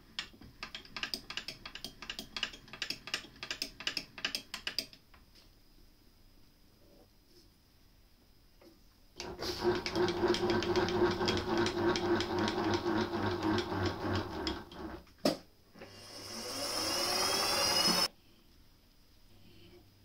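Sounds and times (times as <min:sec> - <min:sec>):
motor humming with rapid ticking: 0:09.2 - 0:15.0, 0:16.0 - 0:18.1
spindle spinning up whine: 0:16.0 - 0:18.1.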